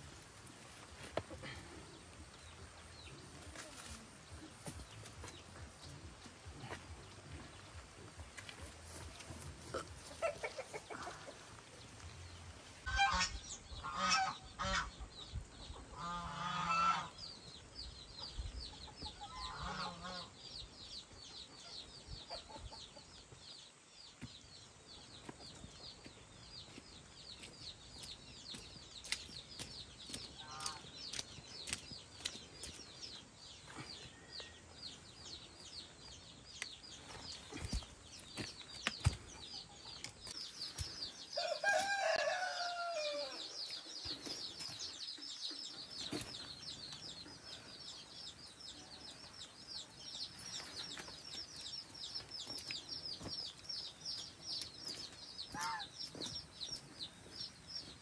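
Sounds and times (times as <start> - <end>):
poultry honking and clucking: 9.6 - 11.4, 12.9 - 15.0, 15.9 - 17.2, 19.2 - 20.4, 30.4 - 30.8, 55.5 - 55.9.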